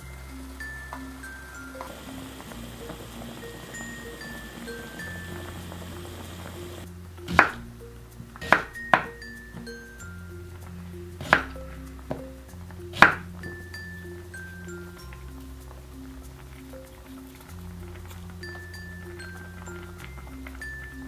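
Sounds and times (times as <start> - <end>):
light background music: 0.0 - 21.0
pot simmering hiss: 0.0 - 21.0
knife chopping on wooden board: 7.3 - 7.6, 8.4 - 9.1, 11.2 - 11.6, 13.0 - 13.2.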